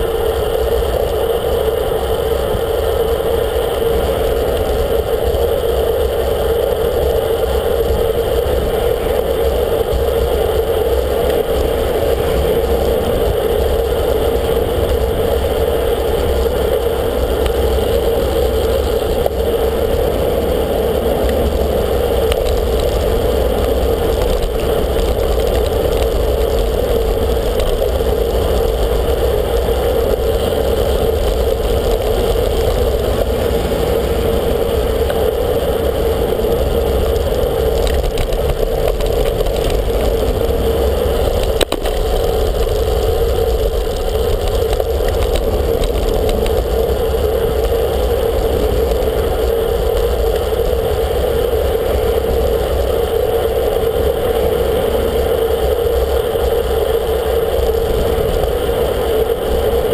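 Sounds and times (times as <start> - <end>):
road noise: 0.0 - 59.9
wind noise: 0.0 - 59.9.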